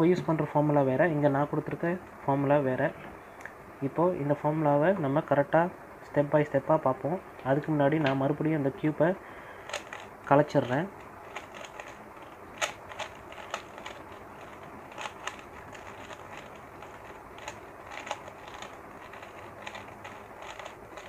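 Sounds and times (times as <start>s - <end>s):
puzzle cube clicking: 9.6s - 21.0s.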